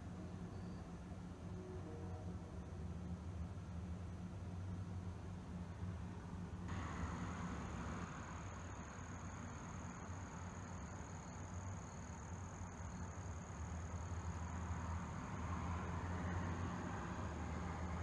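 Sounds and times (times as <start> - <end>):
faint high whine: 0.0 - 5.0, 6.7 - 18.0
diesel truck engine idling: 6.7 - 10.0.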